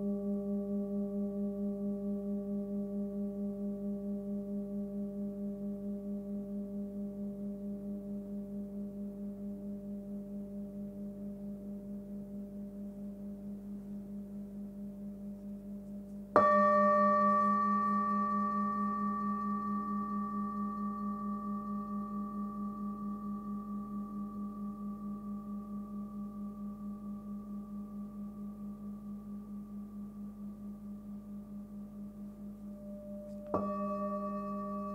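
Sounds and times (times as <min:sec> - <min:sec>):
singing bowl strike: 0:16.3 - 0:29.8, 0:31.7 - 0:34.9
singing bowl ringing: 0:16.3 - 0:34.9.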